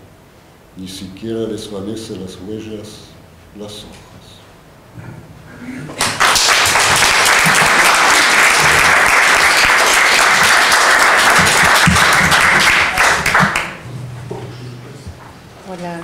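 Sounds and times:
audience applauding: 5.9 - 13.8.

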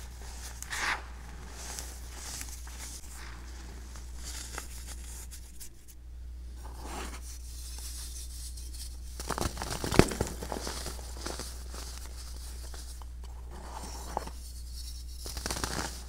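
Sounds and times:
powder crunching between fingers: 15.2 - 16.0.

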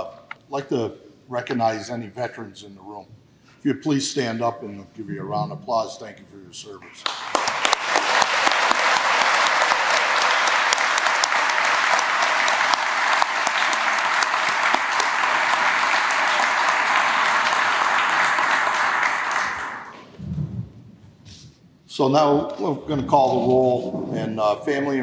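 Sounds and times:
audience applauding: 7.0 - 20.1.

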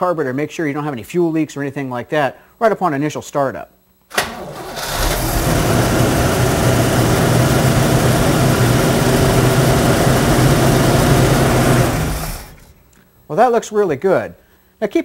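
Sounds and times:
car engine starting and idling: 4.1 - 12.8.

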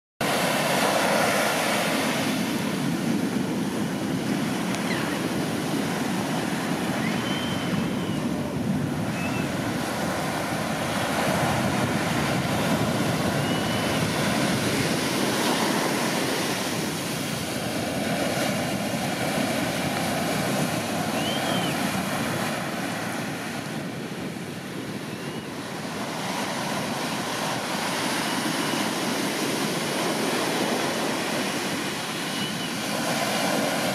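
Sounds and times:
surf waves crashing: 0.2 - 33.9
faint bird calls: 4.8 - 5.2, 7.0 - 8.4, 9.1 - 9.6, 32.3 - 32.8.

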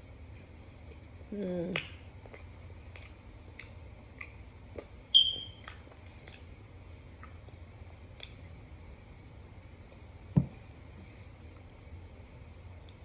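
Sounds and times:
person chewing and crunching: 1.8 - 5.0.

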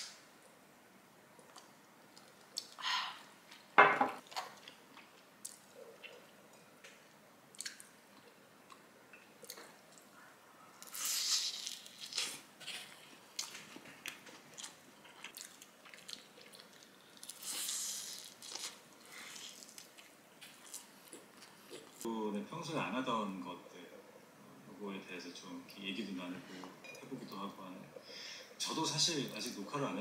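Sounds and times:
wet chewing: 10.8 - 22.1.

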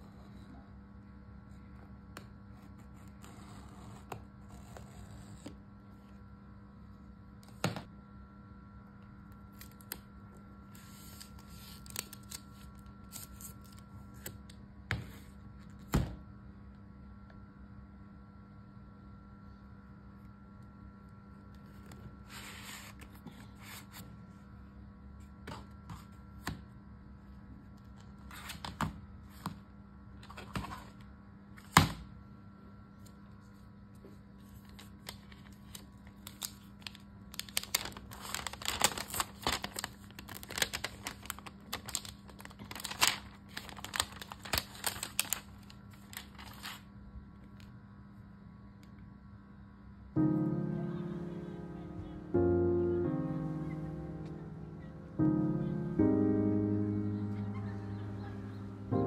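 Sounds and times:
plastic film crinkling and tearing: 10.7 - 14.4, 34.4 - 46.9.

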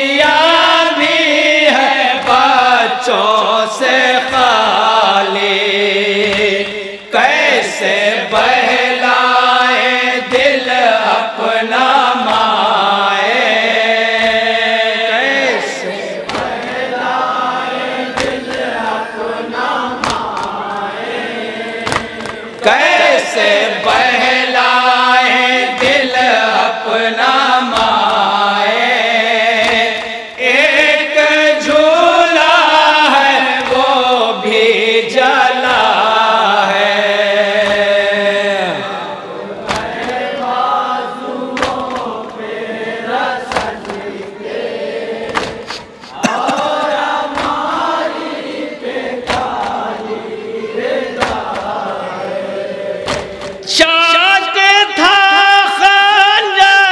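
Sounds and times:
men chanting a lament: 0.0 - 56.9
hands slapping on chests: 2.2 - 2.6, 6.2 - 6.8, 10.2 - 10.8, 11.8 - 18.9, 19.8 - 24.4, 25.4 - 30.6, 33.4 - 34.0, 36.7 - 38.4, 39.5 - 42.6, 43.4 - 44.4, 45.2 - 50.0, 51.0 - 52.4, 53.0 - 53.6.

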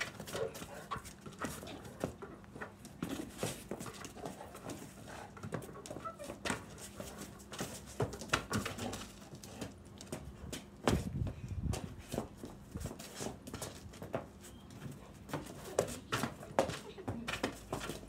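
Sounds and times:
dog noises: 0.0 - 7.5
basketball bouncing on concrete: 5.4 - 14.3, 15.2 - 18.0
shoes scuffing: 10.1 - 18.0.

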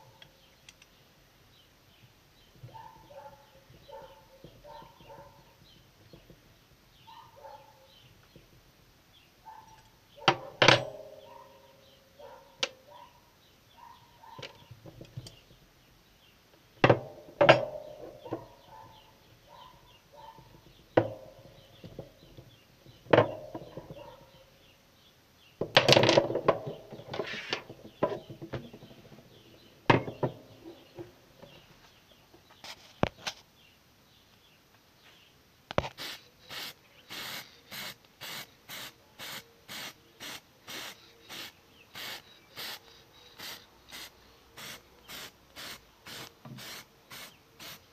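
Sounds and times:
spray paint can hissing: 35.8 - 47.9.

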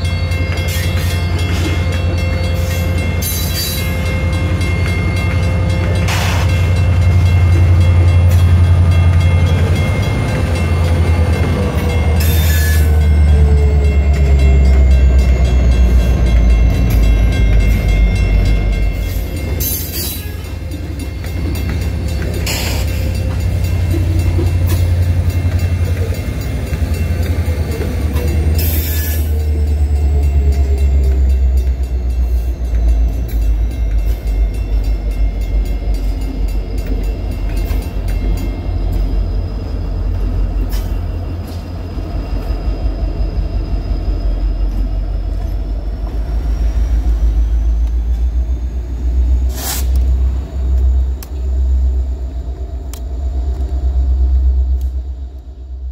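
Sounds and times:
freight train rumbling past: 0.0 - 55.9
train wheel clicks: 4.6 - 39.2.

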